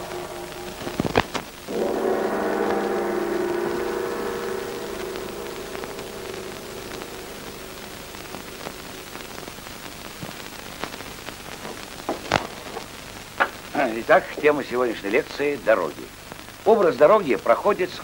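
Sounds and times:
ringing gong-like chord: 0.0 - 10.1
film soundtrack hiss and crackle: 0.0 - 18.0.

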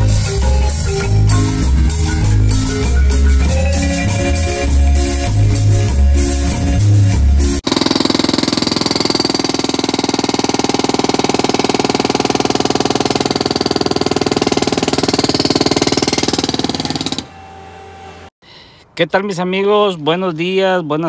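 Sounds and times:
hydraulic breaker hammering concrete: 7.6 - 17.3.

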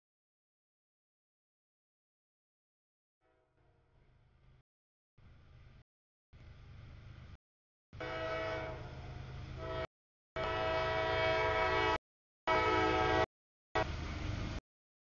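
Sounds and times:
locomotive air horn blasts: 8.0 - 14.0
train rumble: 8.0 - 14.6.

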